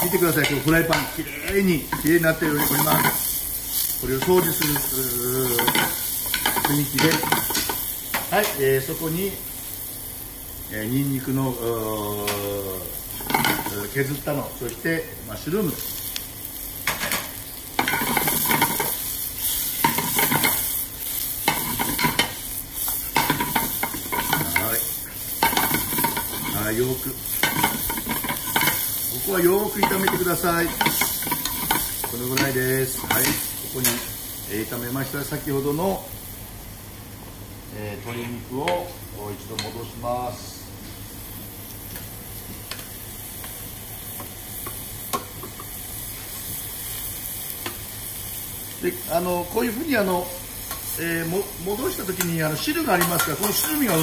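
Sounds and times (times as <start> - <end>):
vegetables sizzling in a frying pan: 0.0 - 54.0
vegetables tossed in a pan: 15.8 - 34.2
metal spoon stirring in a pan: 21.4 - 24.8, 25.4 - 26.7, 27.4 - 29.0, 29.8 - 33.4.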